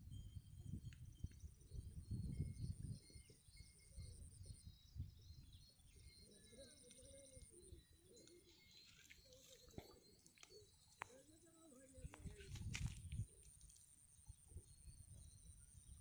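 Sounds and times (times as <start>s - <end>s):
wind rumble on microphone: 0.0s - 6.2s, 11.9s - 16.0s
dove cooing: 6.1s - 10.8s.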